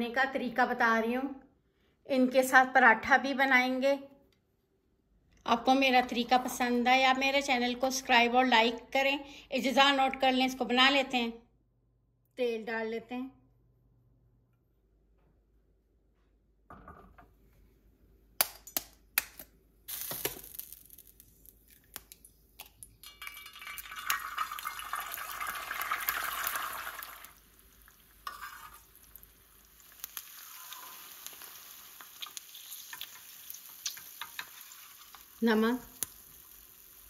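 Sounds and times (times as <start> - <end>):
egg sizzling in oil: 19.9 - 37.0.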